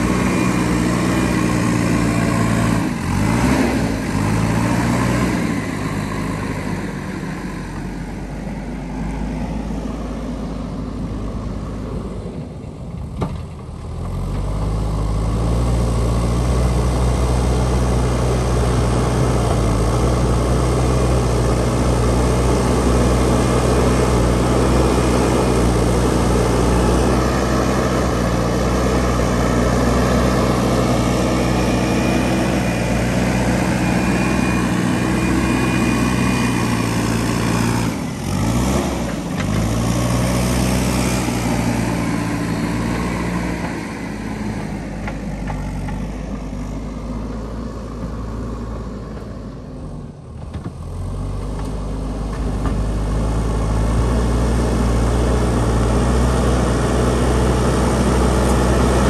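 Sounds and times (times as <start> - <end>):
backhoe diesel engine under load: 0.0 - 59.0.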